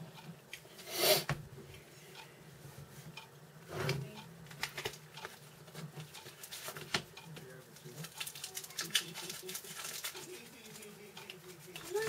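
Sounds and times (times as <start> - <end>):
wrappers crinkling: 7.8 - 11.0.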